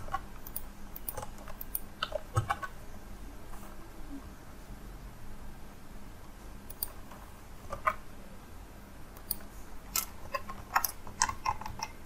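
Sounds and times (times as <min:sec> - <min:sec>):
computer keyboard and mouse clicks: 0:00.0 - 0:02.8, 0:06.7 - 0:08.0, 0:09.2 - 0:12.0
faint steady hum: 0:00.0 - 0:12.0.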